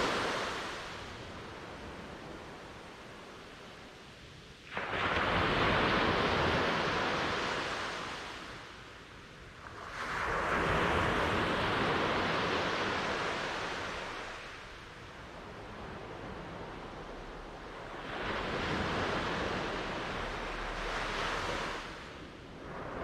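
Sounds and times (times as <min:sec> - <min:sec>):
ocean waves breaking: 0:00.0 - 0:03.0, 0:04.6 - 0:08.6, 0:15.4 - 0:23.0.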